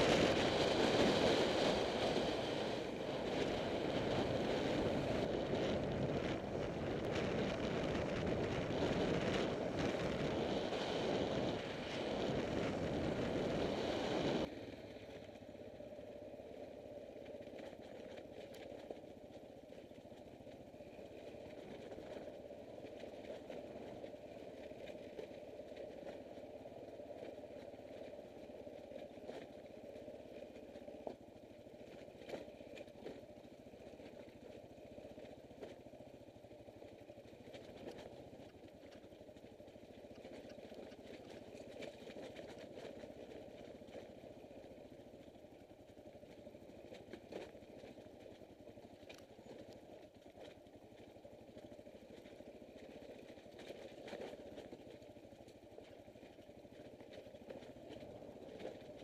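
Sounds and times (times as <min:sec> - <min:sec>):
motorcycle engine at low revs: 0:00.0 - 0:59.0
wheels knocking over rocks: 0:03.4 - 0:59.0.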